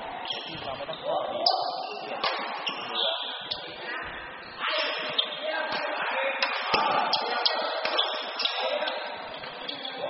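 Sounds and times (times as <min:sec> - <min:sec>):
racket hitting shuttlecock: 0:02.2 - 0:02.5.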